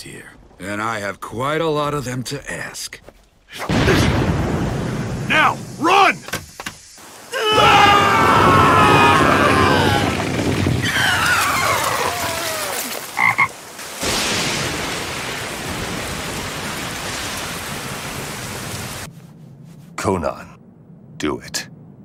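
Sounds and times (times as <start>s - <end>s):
heavy rain: 3.7s - 19.1s
toad croaking: 13.1s - 13.6s.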